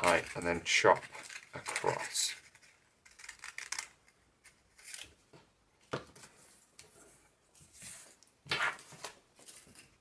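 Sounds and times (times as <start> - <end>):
scissors snipping paper: 1.0 - 5.0.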